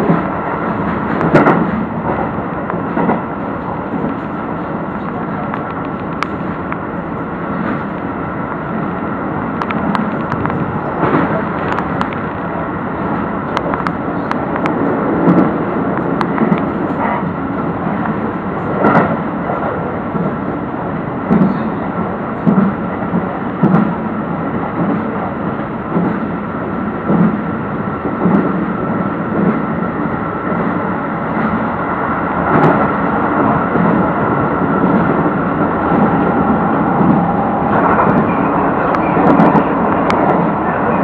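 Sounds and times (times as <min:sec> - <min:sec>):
train wheels rumbling on rail: 0:00.0 - 0:41.0.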